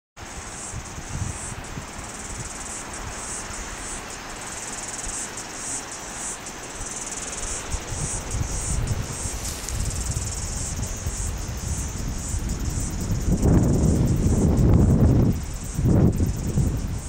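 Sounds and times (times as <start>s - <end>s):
wind rumble on microphone: 0.2s - 5.4s, 6.6s - 17.0s
cicadas buzzing: 0.2s - 17.0s
microphone handling noise: 8.8s - 10.9s.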